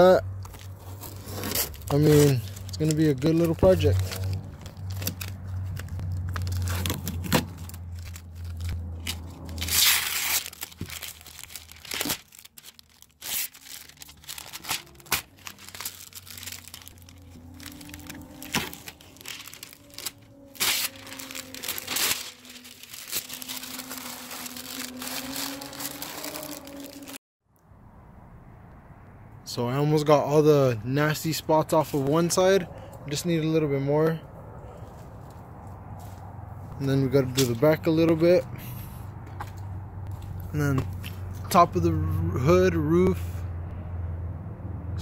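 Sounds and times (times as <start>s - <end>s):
tape peeling off: 0.4s - 27.2s
paper crumpling: 0.5s - 27.2s.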